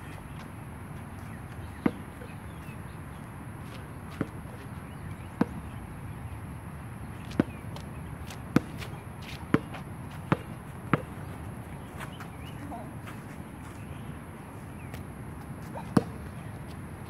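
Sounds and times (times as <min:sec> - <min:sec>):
basketball bouncing on hard court: 0:07.3 - 0:07.6, 0:08.2 - 0:08.9, 0:09.5 - 0:11.2, 0:15.9 - 0:16.3.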